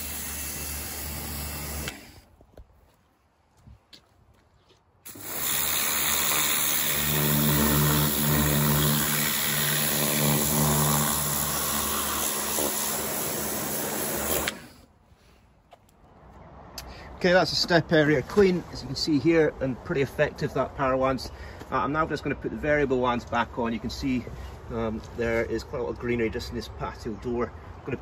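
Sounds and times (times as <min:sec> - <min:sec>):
pressure washer motor hum: 0:00.0 - 0:02.2, 0:05.1 - 0:14.8
water jet hissing: 0:00.0 - 0:02.2, 0:05.1 - 0:14.8.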